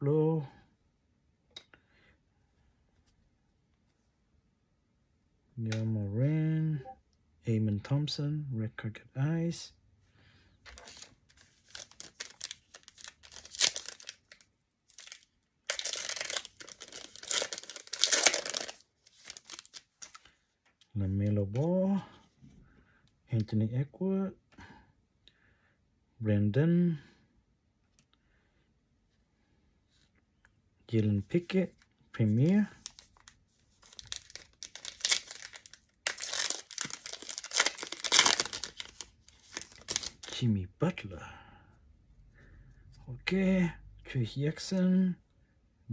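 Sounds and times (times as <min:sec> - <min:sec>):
foil packs crinkling: 0:10.7 - 0:20.3, 0:32.4 - 0:40.4
foil pack tearing open: 0:11.7 - 0:20.2, 0:33.8 - 0:40.3.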